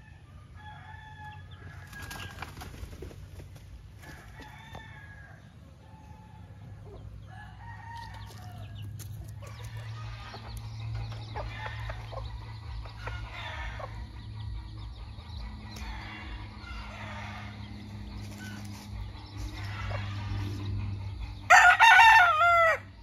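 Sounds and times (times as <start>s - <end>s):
rooster crowing: 0.0s - 2.0s, 4.0s - 8.8s, 13.0s - 14.2s, 15.7s - 18.6s, 19.4s - 20.7s, 21.4s - 23.0s
hens clucking: 8.0s - 22.8s.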